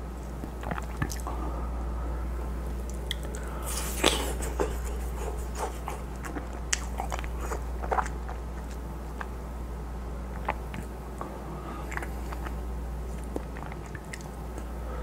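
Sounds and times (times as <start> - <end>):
biting and chewing ice pop: 2.8 - 9.5, 10.2 - 11.0, 11.8 - 14.8.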